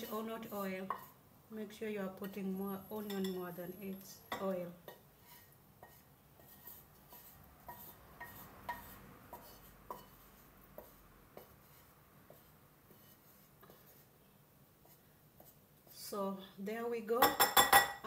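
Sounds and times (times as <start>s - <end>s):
utensil scraping frying pan: 0.0s - 1.2s, 4.3s - 14.2s.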